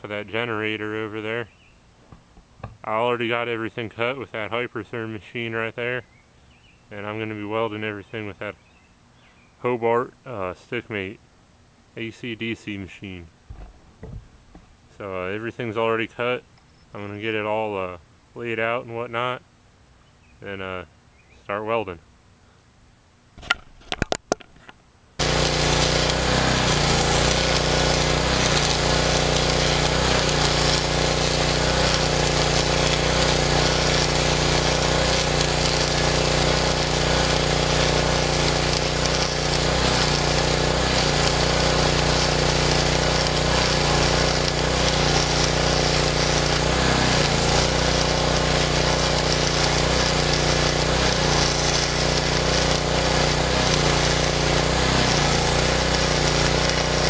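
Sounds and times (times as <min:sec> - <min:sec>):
low welder hum: 0:13.4 - 0:15.4, 0:25.2 - 0:57.0
welding arc crackling: 0:25.2 - 0:57.0.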